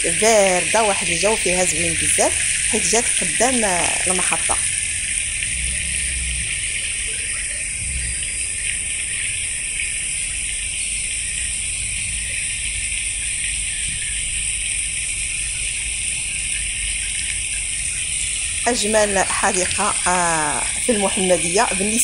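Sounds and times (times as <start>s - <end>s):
water running and splashing: 0.0s - 22.0s
low rumble: 1.1s - 12.4s.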